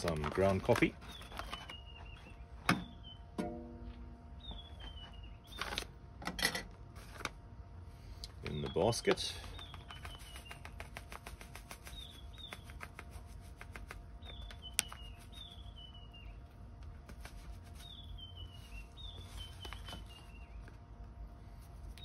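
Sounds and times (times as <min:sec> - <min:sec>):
bird singing: 0:00.3 - 0:05.9, 0:08.4 - 0:10.7, 0:11.8 - 0:12.9, 0:14.2 - 0:16.6, 0:17.8 - 0:20.8.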